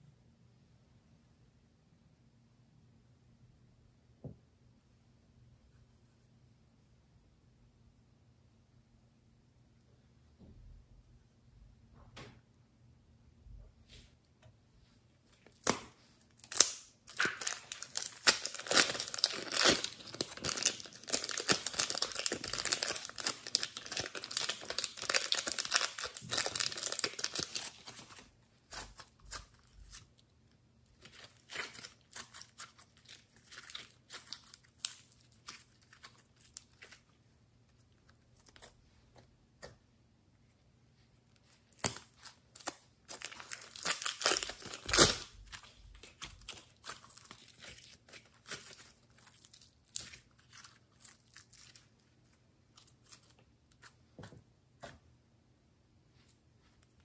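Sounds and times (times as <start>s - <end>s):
plastic bags crinkling: 16.4s - 29.8s, 41.8s - 51.9s.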